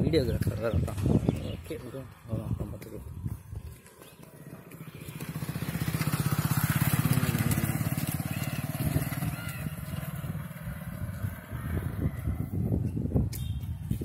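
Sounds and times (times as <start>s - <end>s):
motorcycle engine passing: 3.6s - 13.2s.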